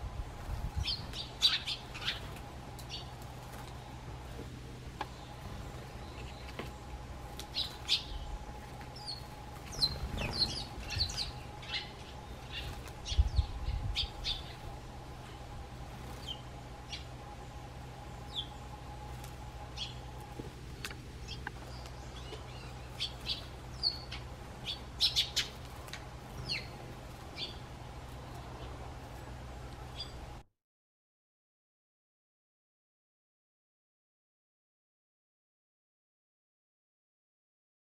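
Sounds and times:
sparrows chirping: 0:00.2 - 0:30.4.

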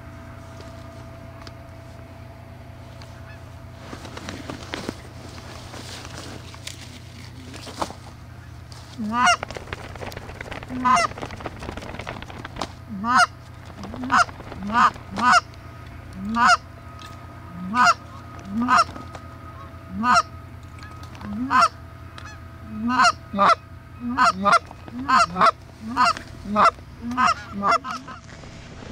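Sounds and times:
goose honking: 0:03.2 - 0:03.6, 0:08.4 - 0:09.4, 0:10.5 - 0:11.5, 0:12.9 - 0:28.3.

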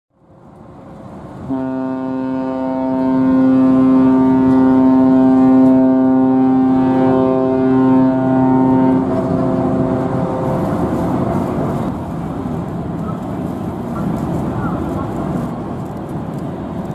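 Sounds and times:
ship whistle blast: 0:01.5 - 0:10.5
steady rushing noise: 0:08.5 - 0:16.9.

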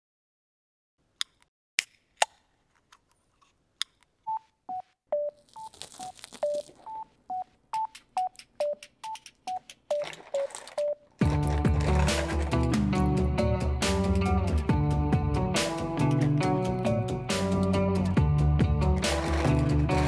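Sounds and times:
sharp clicks: 0:07.8 - 0:10.8.

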